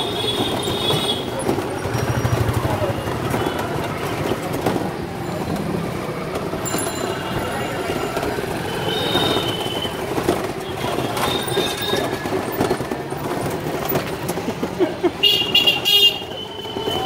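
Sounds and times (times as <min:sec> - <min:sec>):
street traffic: 0:00.0 - 0:17.0
tuk tuk rattling and rumbling: 0:00.0 - 0:17.0
vehicle horn: 0:08.7 - 0:10.0, 0:15.2 - 0:17.0.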